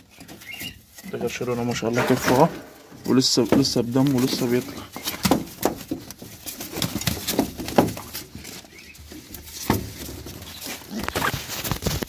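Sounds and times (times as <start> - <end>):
loud thumps: 1.9 - 3.8
pigeons flapping in a cage: 3.5 - 12.0.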